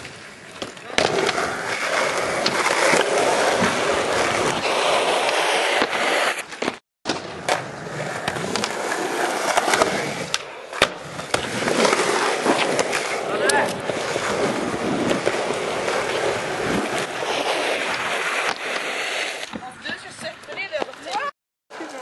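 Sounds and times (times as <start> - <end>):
skateboard wheels rolling on concrete: 0.0 - 22.0
skateboard clacking on ground: 17.8 - 21.3.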